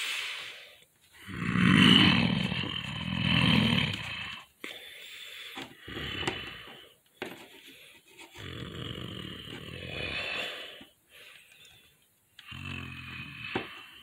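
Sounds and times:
child growling: 0:01.2 - 0:04.5, 0:08.4 - 0:10.5.

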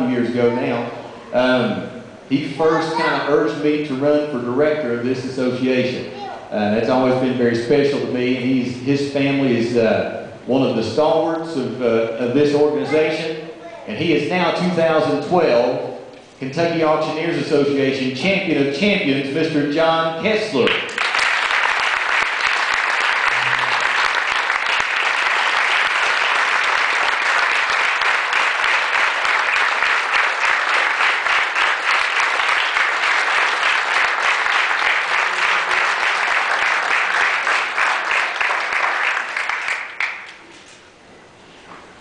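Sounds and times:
people applauding: 0:20.6 - 0:40.4.

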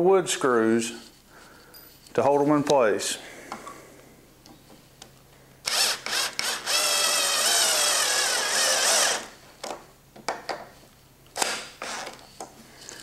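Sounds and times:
cordless drill driving a screw: 0:05.6 - 0:09.3, 0:11.4 - 0:12.2.

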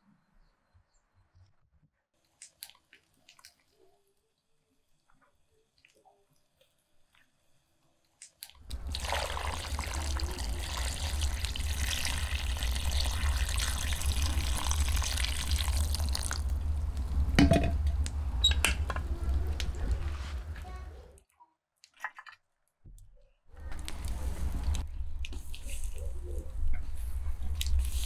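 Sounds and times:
water splashing into a pot: 0:08.7 - 0:16.6.

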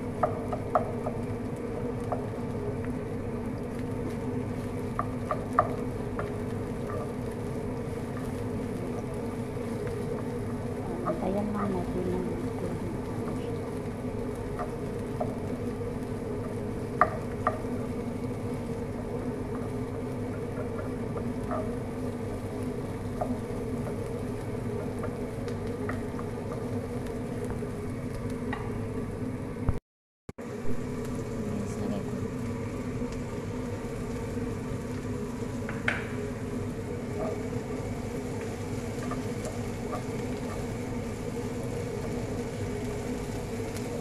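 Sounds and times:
low buzzing hum: 0:00.0 - 0:29.8, 0:30.4 - 0:44.0
spatula tapping pan: 0:00.1 - 0:01.2, 0:04.9 - 0:07.2, 0:16.4 - 0:17.8
spatula stirring onions in pan: 0:13.0 - 0:27.7.

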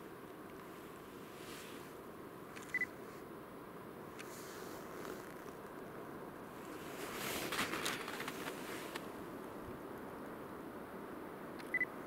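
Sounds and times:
rustling: 0:04.2 - 0:05.7, 0:06.5 - 0:09.4.

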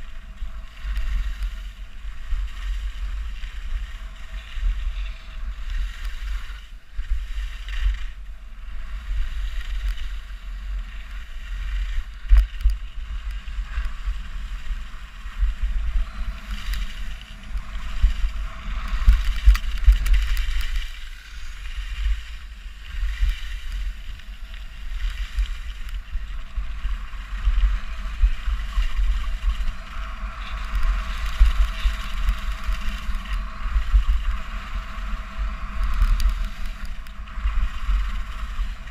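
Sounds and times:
skis scraping over packed snow: 0:00.0 - 0:38.9
wind buffeting microphone: 0:00.0 - 0:38.9.

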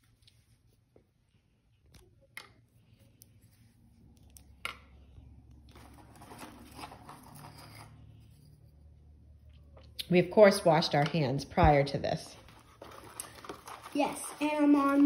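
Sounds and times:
rustling in a box: 0:05.7 - 0:07.9, 0:12.3 - 0:15.0.

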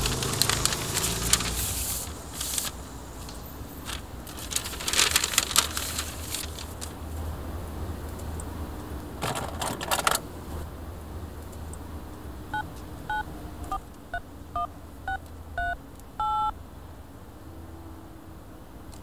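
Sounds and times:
phone keypad dialing tones: 0:12.5 - 0:16.6.

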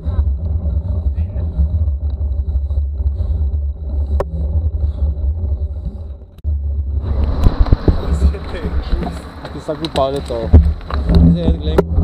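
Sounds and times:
wind on microphone: 0:00.0 - 0:09.4
tyre and road vibration: 0:00.0 - 0:12.0.

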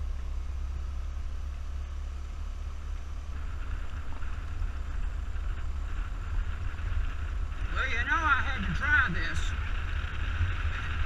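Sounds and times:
scooter engine: 0:00.0 - 0:11.0
tyres on gravel: 0:01.6 - 0:11.0
wind buffeting microphone: 0:03.2 - 0:11.0.

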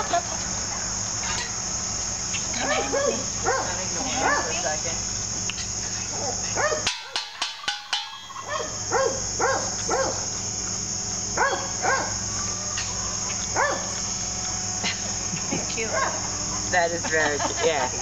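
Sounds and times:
crickets chirping: 0:00.0 - 0:18.0
pan struck with sharp bangs: 0:06.8 - 0:08.5.

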